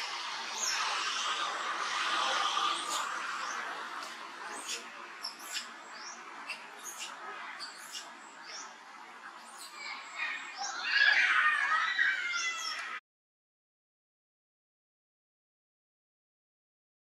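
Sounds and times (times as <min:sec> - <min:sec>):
macaques squeaking: 0:02.2 - 0:08.2.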